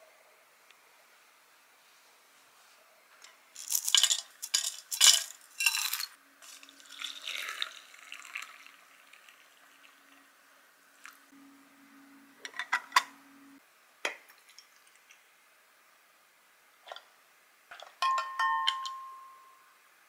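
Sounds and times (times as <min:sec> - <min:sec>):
hot water pouring into teapot: 0:06.4 - 0:10.4.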